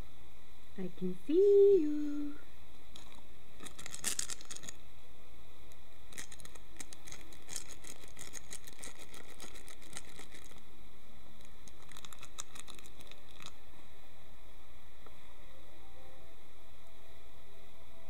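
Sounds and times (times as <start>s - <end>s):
fabric crinkling and scratching: 3.0s - 4.8s, 6.2s - 10.6s, 11.6s - 13.6s.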